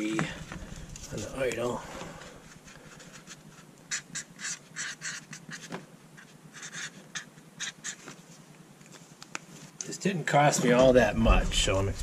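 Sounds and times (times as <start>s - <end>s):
marker scratching on cardboard: 2.5s - 8.2s.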